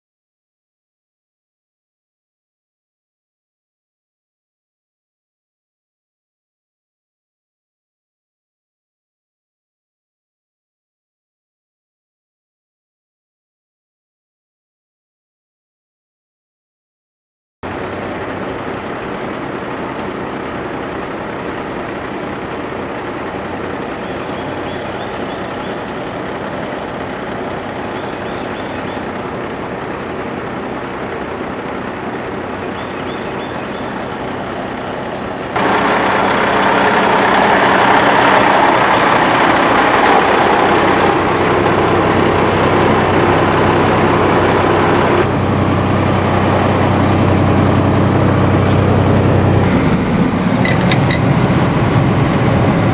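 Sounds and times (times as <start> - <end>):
road noise inside truck cab: 17.6 - 52.9
truck engine drone: 17.6 - 52.9.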